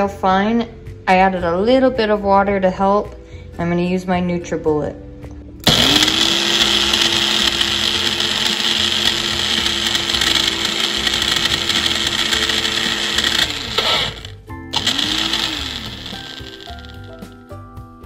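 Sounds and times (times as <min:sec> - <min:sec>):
blender grinding: 0:05.6 - 0:17.4.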